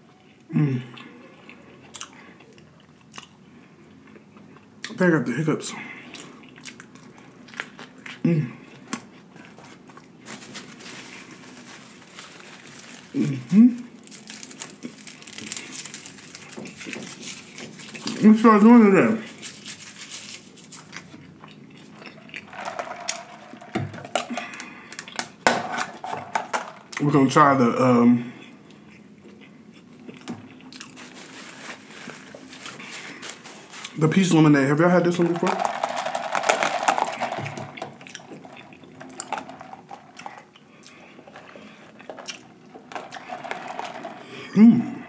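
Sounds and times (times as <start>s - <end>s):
plastic cup clicks and crackles: 22.4s - 26.9s, 35.3s - 40.4s.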